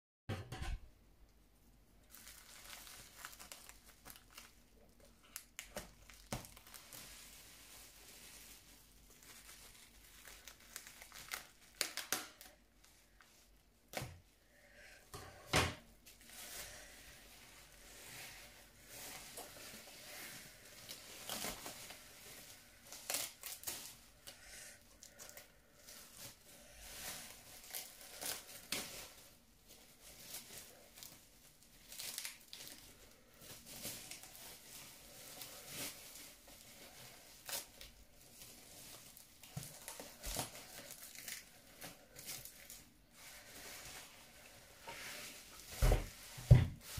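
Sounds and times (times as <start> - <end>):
bubble wrap crinkling and snapping: 1.9 - 14.8, 15.8 - 46.9.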